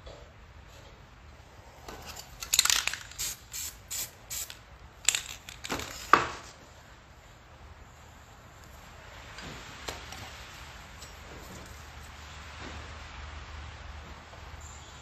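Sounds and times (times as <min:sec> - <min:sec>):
spray paint can hissing: 0:02.5 - 0:05.6.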